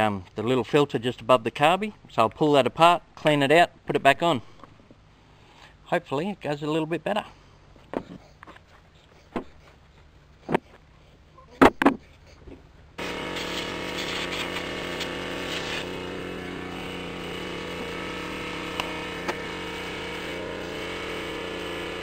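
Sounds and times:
small machine motor running: 13.0s - 22.0s.

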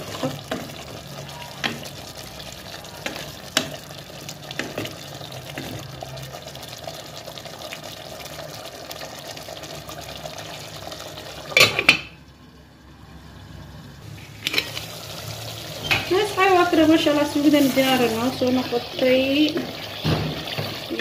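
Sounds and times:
stew bubbling in pot: 0.0s - 12.4s, 14.1s - 21.0s
metal lid clattering: 11.5s - 12.1s, 14.4s - 14.9s.

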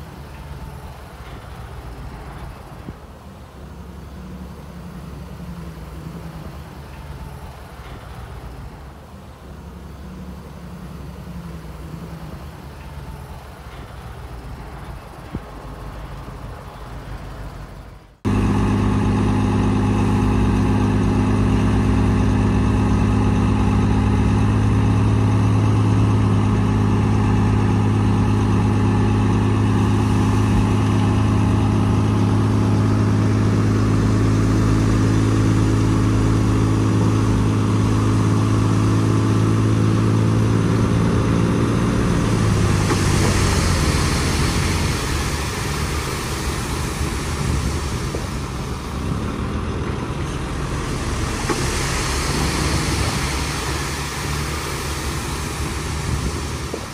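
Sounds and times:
heavy diesel engine running: 0.0s - 56.9s
hissing noise: 27.0s - 56.9s.

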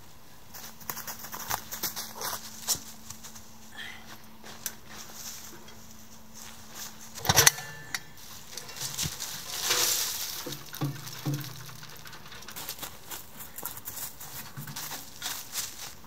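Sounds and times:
loud metal stove clank: 7.2s - 8.9s
ash rushing hiss onto leaves: 9.1s - 11.6s.

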